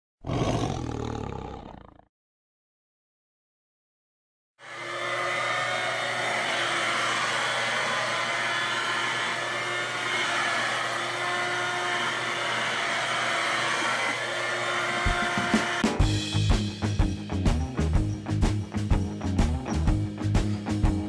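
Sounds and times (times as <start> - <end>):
handheld vacuum cleaner running: 4.6 - 16.0.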